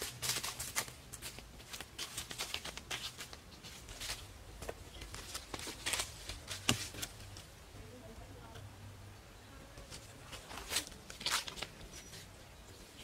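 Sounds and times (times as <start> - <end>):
footsteps on dry leaves: 0.0 - 7.4, 9.9 - 12.2
leaves and twigs crackling: 0.0 - 7.6, 9.8 - 13.0.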